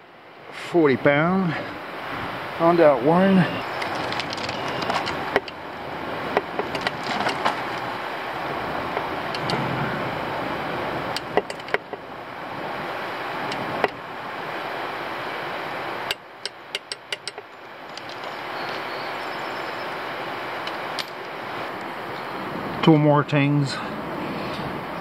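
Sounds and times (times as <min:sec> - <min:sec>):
steady background hiss: 0:00.0 - 0:25.0
wrench clicks and knocks: 0:16.4 - 0:18.2.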